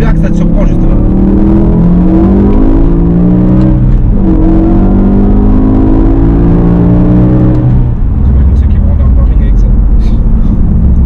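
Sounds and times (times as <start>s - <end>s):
car engine accelerating hard: 0.0s - 11.0s.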